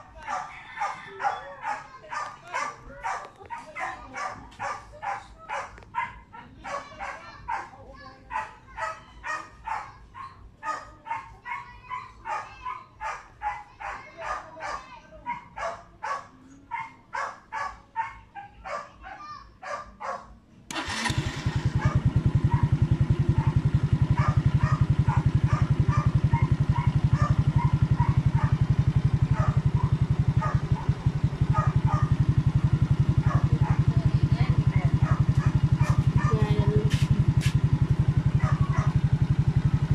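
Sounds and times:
dog barking: 0:00.0 - 0:20.9, 0:21.7 - 0:39.9
motorcycle engine starting and idling: 0:20.7 - 0:39.9.

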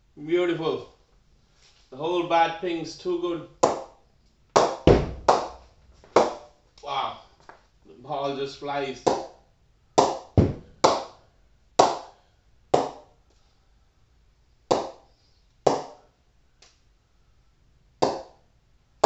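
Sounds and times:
ball knocking on cricket bat: 0:04.6 - 0:06.4, 0:10.0 - 0:11.1, 0:12.8 - 0:13.0, 0:14.7 - 0:15.0, 0:18.0 - 0:18.3.

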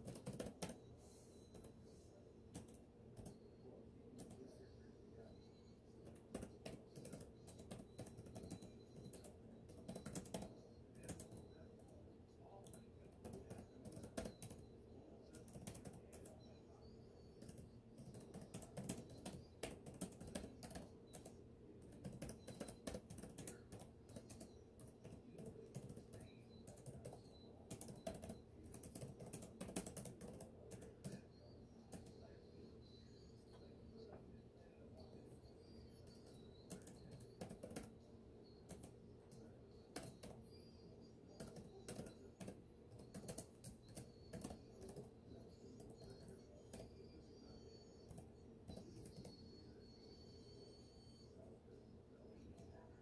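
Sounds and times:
keyboard typing clicks: 0:00.0 - 0:00.8, 0:02.5 - 0:03.4, 0:06.0 - 0:11.5, 0:12.6 - 0:14.7, 0:15.3 - 0:16.4, 0:17.4 - 0:31.2, 0:36.0 - 0:38.0, 0:38.6 - 0:40.4, 0:41.3 - 0:45.1, 0:48.1 - 0:49.4
faint steady hum: 0:00.0 - 0:53.0.

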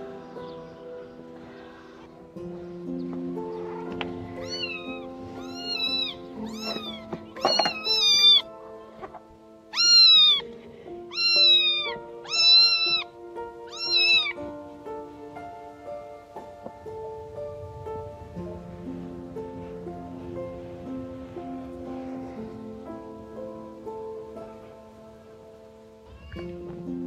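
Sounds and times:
background music: 0:00.0 - 0:27.0
cat meowing: 0:04.4 - 0:08.5, 0:09.7 - 0:14.4, 0:26.0 - 0:26.6.

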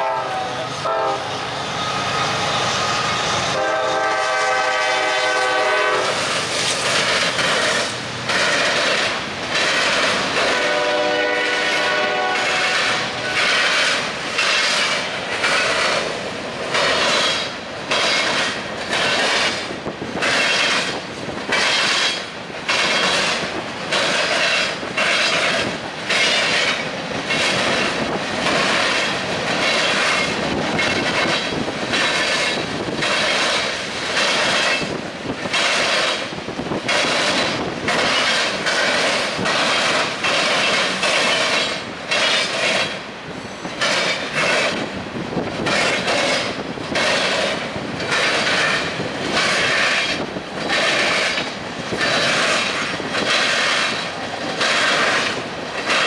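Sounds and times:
locomotive air horn: 0:00.0 - 0:01.4, 0:03.5 - 0:06.2, 0:10.4 - 0:13.7
freight train passing: 0:00.0 - 0:56.0
train wheels clacking on rail joints: 0:02.0 - 0:56.0.

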